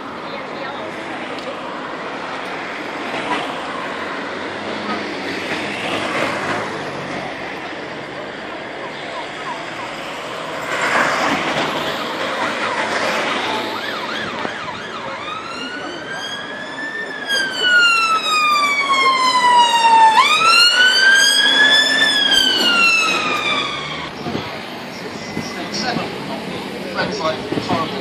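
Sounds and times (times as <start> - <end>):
ambulance siren wailing: 8.1 - 26.1.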